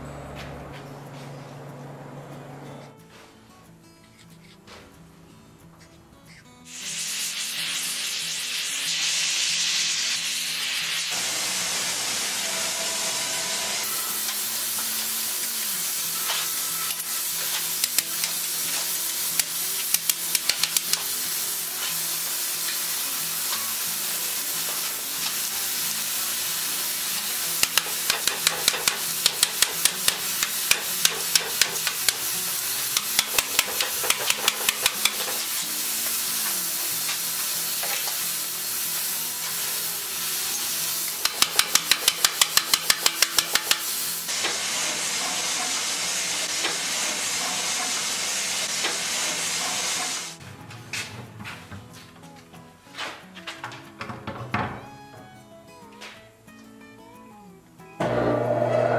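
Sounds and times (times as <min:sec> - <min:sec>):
gas torch hissing: 0:06.7 - 0:50.4
clamps clicking and tapping: 0:16.9 - 0:18.5, 0:19.4 - 0:21.1, 0:27.6 - 0:32.3, 0:32.9 - 0:35.5, 0:41.1 - 0:44.6.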